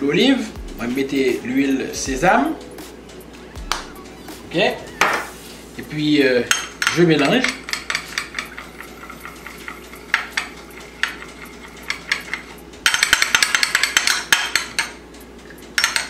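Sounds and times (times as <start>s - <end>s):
spoon clinking against glass bowl: 6.5s - 15.0s, 15.8s - 16.0s.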